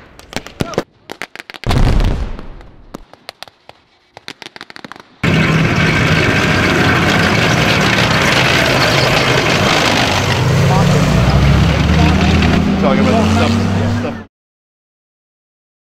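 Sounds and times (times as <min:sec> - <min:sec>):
heavy boom: 0:01.7 - 0:02.8
tank engine running: 0:05.2 - 0:14.3.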